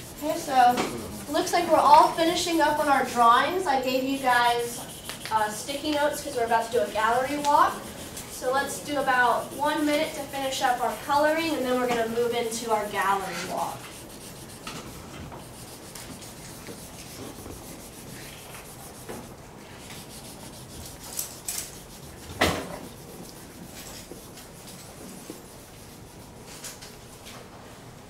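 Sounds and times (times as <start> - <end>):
colouring rubbing on paper: 0.0 - 26.7.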